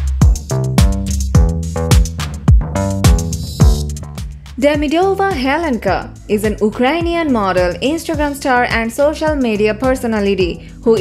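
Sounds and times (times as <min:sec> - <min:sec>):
kick drum: 0:00.0 - 0:05.5, 0:06.5 - 0:07.2
sustained synth chords: 0:00.8 - 0:04.2.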